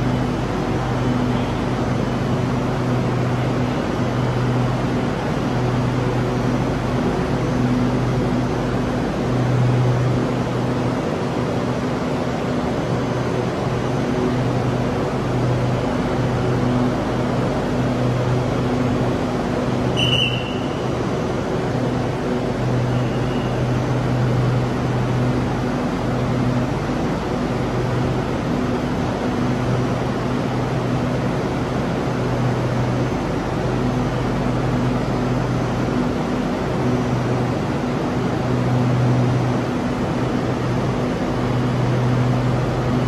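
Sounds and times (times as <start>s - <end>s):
train air-conditioning hum: 0.0s - 43.0s
short high beep: 20.0s - 20.8s.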